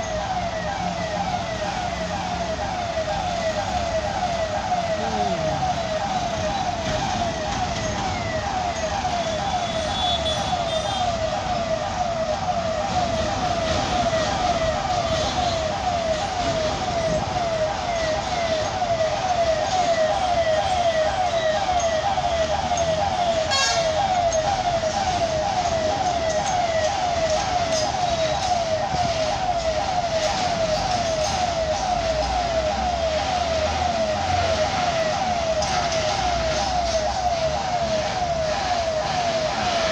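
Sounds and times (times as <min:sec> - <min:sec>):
heavy truck engines rumbling: 0:00.0 - 0:39.9
level crossing warning chirps: 0:01.0 - 0:10.7.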